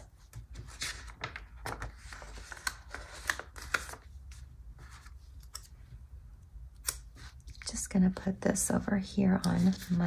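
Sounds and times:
paper rustling: 0:00.3 - 0:05.6.

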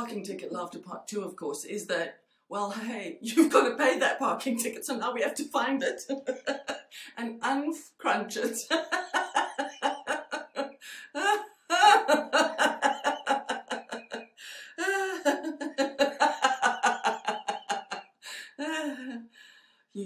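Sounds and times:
woman laughing rhythmically: 0:05.8 - 0:07.2, 0:08.3 - 0:19.2.

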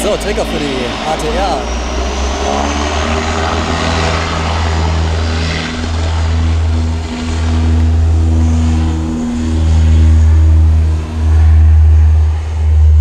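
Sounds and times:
deep propeller drone: 0:00.0 - 0:13.0
steady pitched hum: 0:00.0 - 0:13.0.

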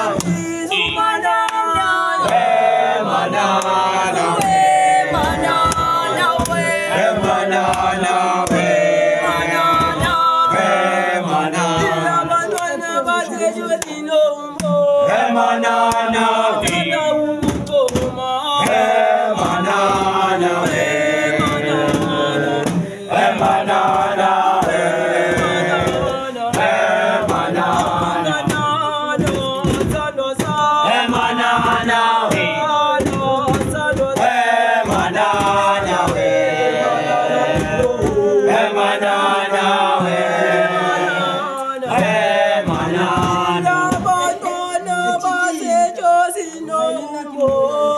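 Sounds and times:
group of boys singing chant: 0:00.0 - 0:47.9.

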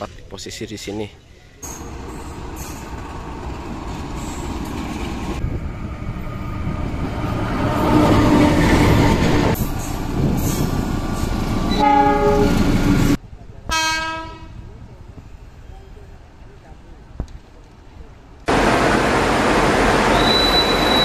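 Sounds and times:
diesel locomotive engine: 0:00.0 - 0:21.0
train wheels on rails: 0:01.6 - 0:13.2, 0:17.1 - 0:21.0
train horn: 0:11.7 - 0:12.6, 0:13.7 - 0:14.5.

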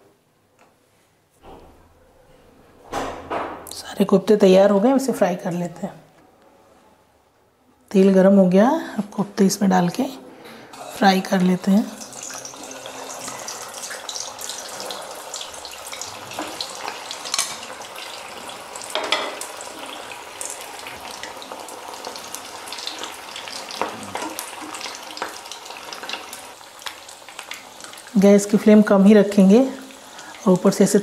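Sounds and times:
food deep-frying in hot oil: 0:10.8 - 0:31.0.

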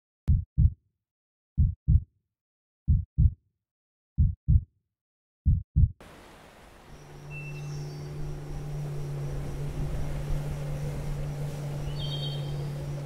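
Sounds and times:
heartbeat thumps: 0:00.3 - 0:00.8, 0:01.6 - 0:02.1, 0:02.9 - 0:03.4, 0:04.2 - 0:04.7, 0:05.4 - 0:06.0.

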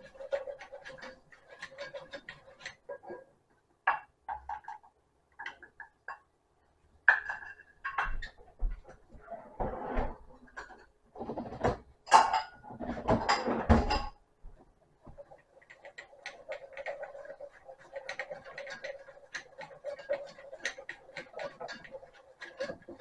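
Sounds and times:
whisk scraping in a pot: 0:00.0 - 0:03.3, 0:14.8 - 0:23.0.

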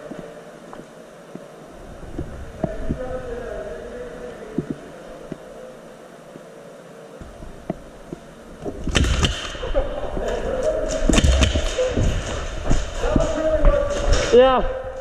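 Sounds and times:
low thumps of players moving: 0:00.0 - 0:03.1, 0:07.2 - 0:14.6
sharp clicks: 0:08.8 - 0:09.6.

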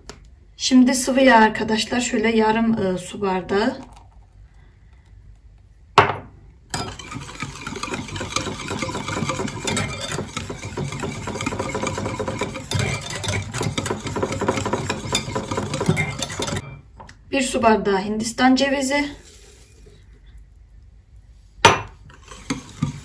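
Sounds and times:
whisk scraping glass bowl: 0:06.7 - 0:16.8, 0:22.1 - 0:23.0.

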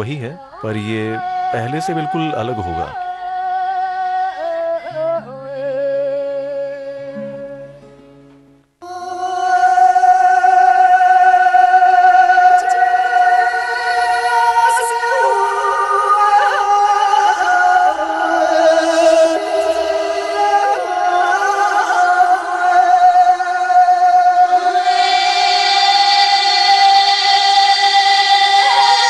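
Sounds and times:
long held notes with singing: 0:00.0 - 0:08.1, 0:08.8 - 0:29.0.

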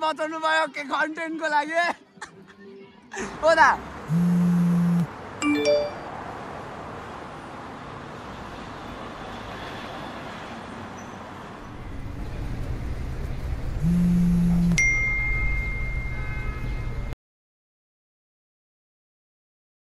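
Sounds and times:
short chime: 0:14.7 - 0:16.6
bright bell-like ding: 0:14.8 - 0:16.5.

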